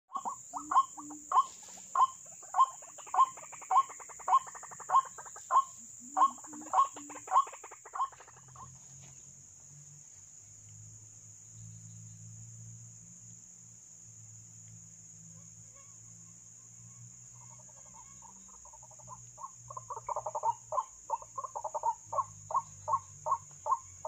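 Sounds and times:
waterhen calling: 0:00.1 - 0:08.7, 0:17.5 - 0:23.9
high insect drone: 0:00.1 - 0:24.0.

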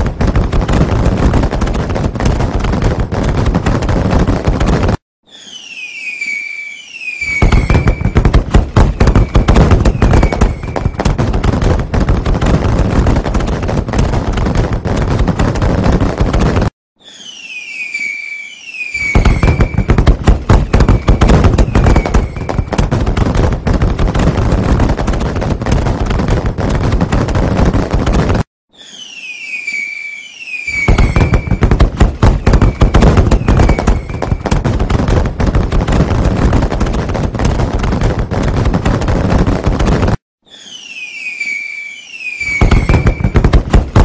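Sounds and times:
fireworks crackling: 0:00.0 - 0:44.0
falling whistles: 0:05.2 - 0:08.2, 0:08.9 - 0:11.0, 0:17.0 - 0:20.0, 0:20.6 - 0:22.8, 0:28.7 - 0:31.7, 0:32.4 - 0:34.6, 0:40.4 - 0:43.4.

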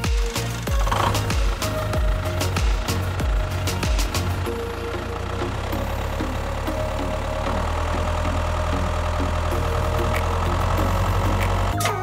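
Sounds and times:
engine idling: 0:00.0 - 0:12.0.

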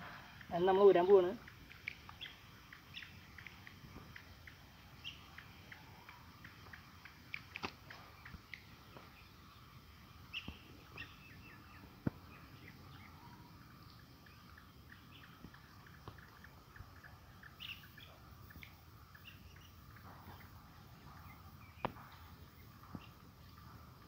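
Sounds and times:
small birds chirping: 0:00.0 - 0:24.0
sharp clicks: 0:01.4 - 0:08.7.

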